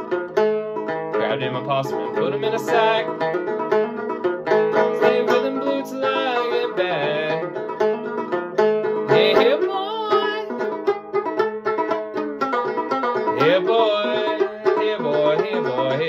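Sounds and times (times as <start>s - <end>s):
banjo plucked notes: 0.0s - 16.0s.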